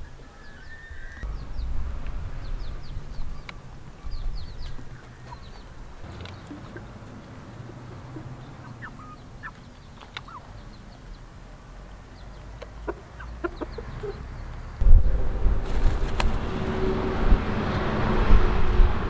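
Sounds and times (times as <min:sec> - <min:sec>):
chickens clucking: 0:00.0 - 0:14.8.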